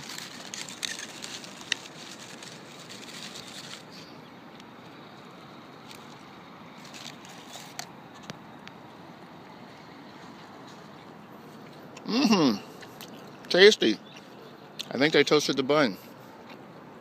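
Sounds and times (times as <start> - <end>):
paper food tray crinkling: 0.0 - 4.1, 5.8 - 8.4
outdoor ambience hiss: 0.0 - 17.0.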